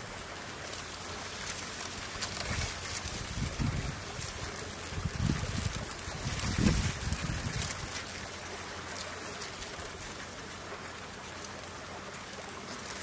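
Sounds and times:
outdoor wetland hiss: 0.0 - 13.0
wind buffeting the microphone: 2.3 - 8.2.

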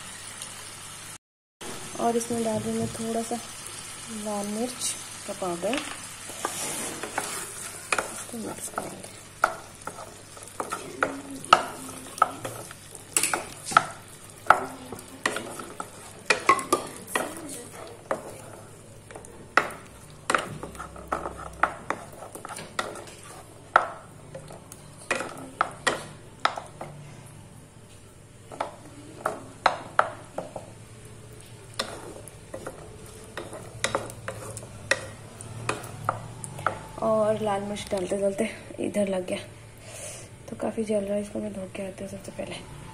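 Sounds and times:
light sizzle: 0.0 - 42.9
spatula knocking and scraping pan: 5.6 - 27.0, 28.5 - 30.8, 31.7 - 36.9.

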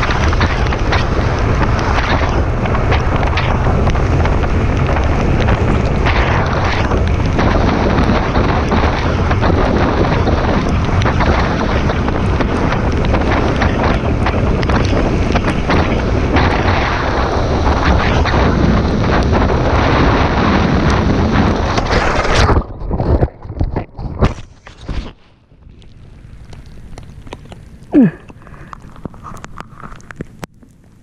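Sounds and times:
motorcycle engine rumble: 0.0 - 23.0
wind buffeting microphone: 0.0 - 31.0.

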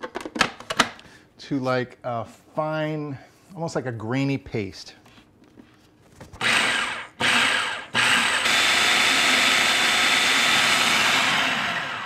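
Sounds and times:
food processor motor whining: 6.4 - 12.0.

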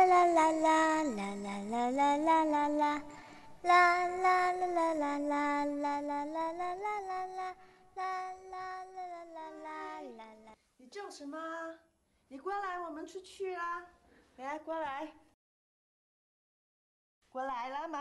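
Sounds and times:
child singing wordless tune: 0.0 - 13.6.

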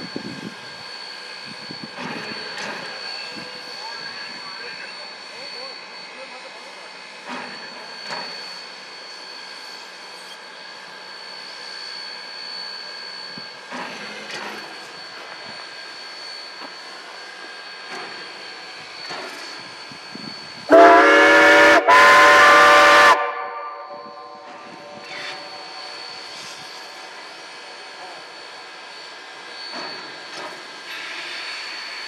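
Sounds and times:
steam whistle chord: 20.7 - 27.1.

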